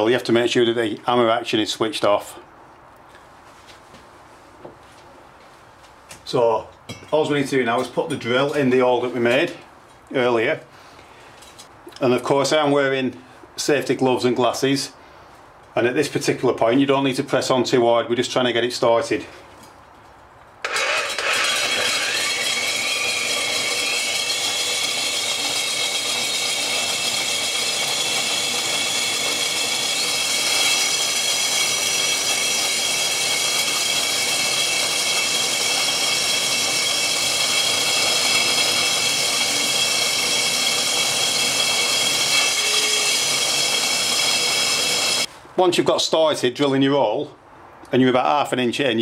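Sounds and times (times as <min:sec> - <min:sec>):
drill motor whine with grinding: 0:20.6 - 0:45.3.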